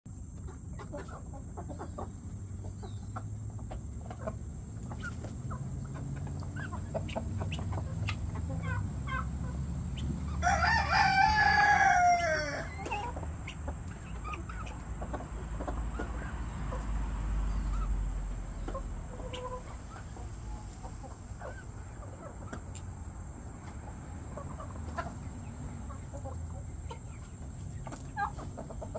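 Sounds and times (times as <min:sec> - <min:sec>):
chickens clucking softly: 0:00.2 - 0:28.9
rooster crowing: 0:10.3 - 0:13.0.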